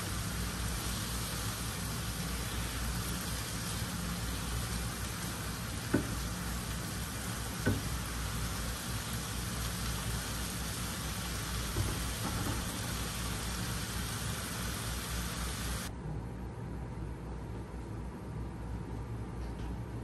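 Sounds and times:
food sizzling in a frying pan: 0:00.0 - 0:15.9
spatula knocking against pan: 0:05.9 - 0:06.2, 0:07.6 - 0:07.9.

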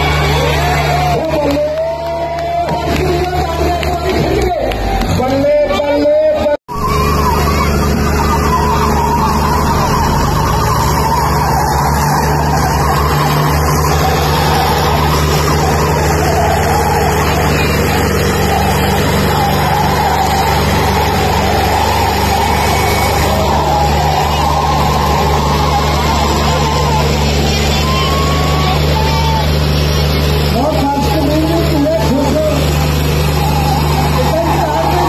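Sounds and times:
tractor engines straining: 0:00.0 - 0:35.0.

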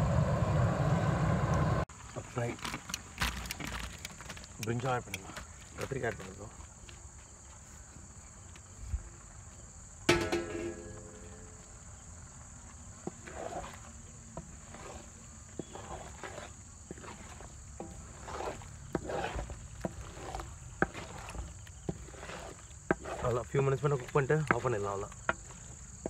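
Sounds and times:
metal spatula clanging on pan: 0:10.1 - 0:11.6
spatula scraping and stirring: 0:10.1 - 0:11.8, 0:12.6 - 0:26.0.

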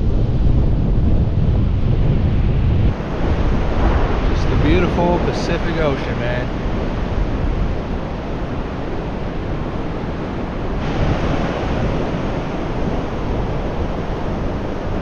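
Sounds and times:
surf washing onto beach: 0:00.0 - 0:15.0
wind buffeting microphone: 0:00.0 - 0:15.0.

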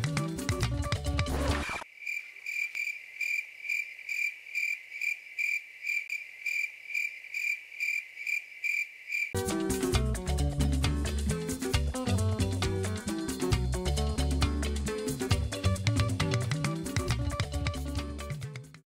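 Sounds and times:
background music: 0:00.0 - 0:01.8, 0:09.4 - 0:18.8
crickets chirping: 0:01.8 - 0:09.4.

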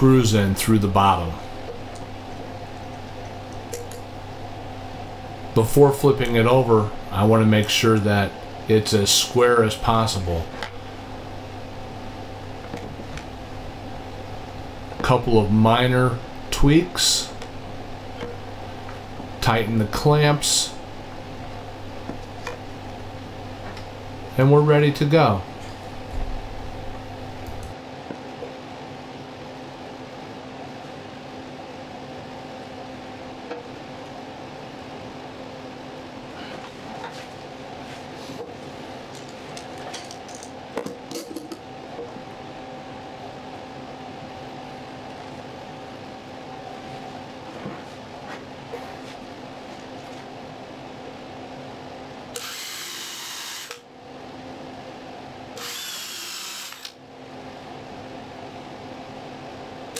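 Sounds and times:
steady machine hum: 0:00.0 - 0:59.9
drill boring through wood: 0:52.4 - 0:53.8, 0:55.6 - 0:57.0.

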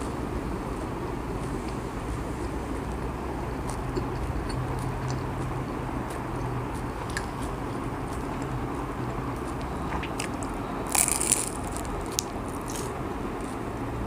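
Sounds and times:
crunchy spring roll bite: 0:09.9 - 0:13.6.

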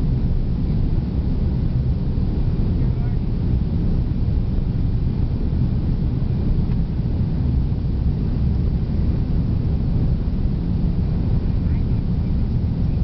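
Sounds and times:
low engine rumble in cabin: 0:00.0 - 0:13.0.

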